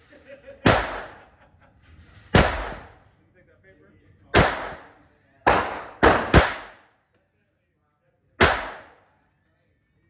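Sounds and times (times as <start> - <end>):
pistol shots echoing indoors: 0.6 - 1.3, 2.3 - 3.1, 4.3 - 7.1, 8.4 - 9.3.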